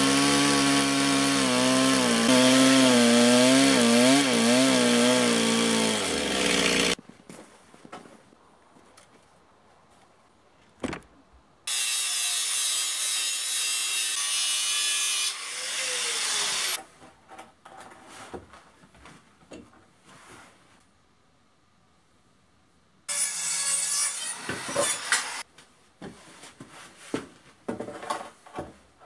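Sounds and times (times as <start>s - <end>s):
angle grinder cutting metal: 0.0s - 7.0s, 11.7s - 16.8s, 23.1s - 25.4s.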